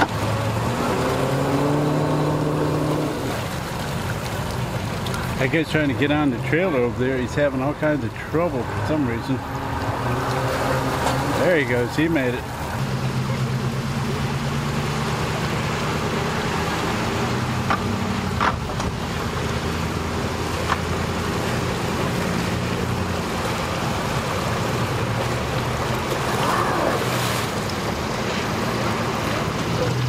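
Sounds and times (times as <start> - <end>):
outboard motor idling: 0.0 - 30.0.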